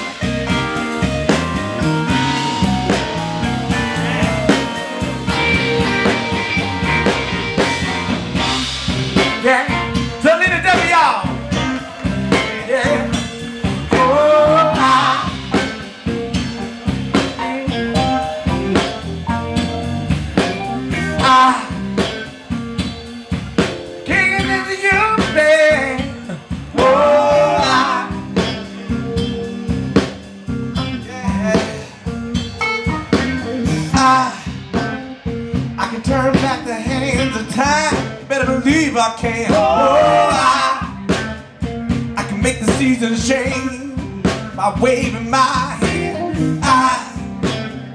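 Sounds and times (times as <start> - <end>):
drums: 0.0 - 47.9
electric guitar: 0.0 - 47.9
person singing: 3.6 - 5.6, 9.2 - 16.0, 21.0 - 22.3, 24.1 - 29.6, 30.9 - 32.2, 33.4 - 34.8, 35.8 - 41.3, 42.2 - 47.4.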